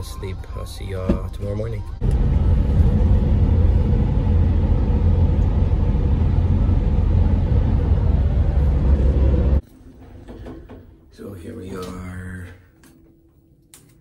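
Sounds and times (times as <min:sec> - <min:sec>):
van road and engine rumble: 0:02.0 - 0:09.6.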